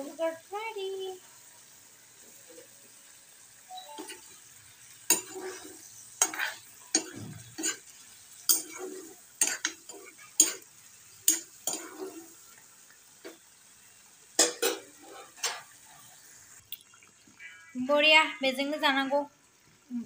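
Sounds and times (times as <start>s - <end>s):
gravy bubbling and sizzling: 0.0s - 20.0s
ladle scraping metal pan: 5.1s - 7.8s, 14.4s - 15.7s.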